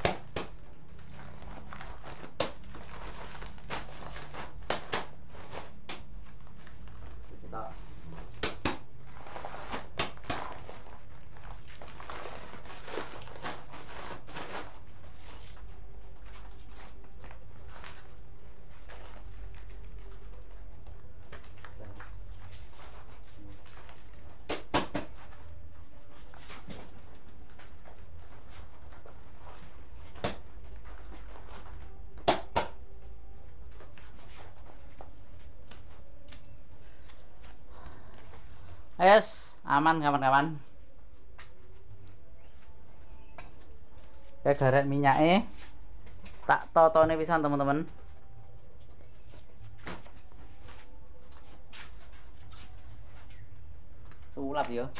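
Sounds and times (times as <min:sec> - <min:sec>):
plastic sacks crinkling: 0:00.0 - 0:08.3, 0:08.9 - 0:20.6.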